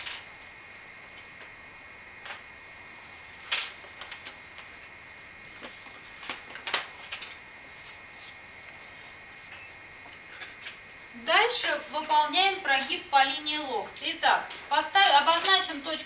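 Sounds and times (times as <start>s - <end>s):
faint high-pitched hum: 0.0s - 16.0s.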